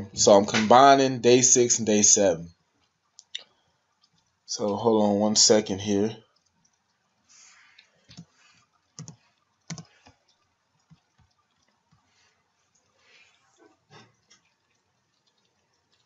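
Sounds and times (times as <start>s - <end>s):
computer keyboard key clicks: 9.0s - 9.9s.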